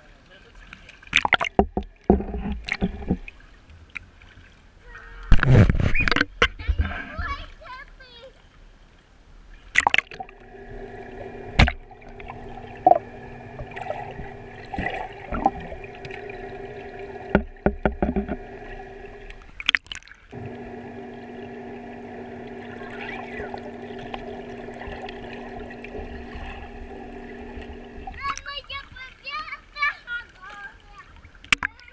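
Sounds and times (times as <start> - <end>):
bubbling: 1.2 - 3.4, 9.8 - 28.5
underwater knocks: 1.2 - 3.4, 10.0 - 19.6, 20.4 - 28.2
muffled underwater machine hum: 2.2 - 3.3, 10.2 - 19.6, 20.3 - 28.4.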